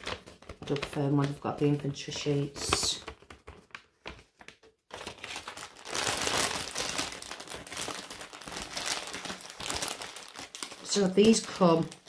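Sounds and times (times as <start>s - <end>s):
plastic bags crinkling: 0.0s - 12.0s.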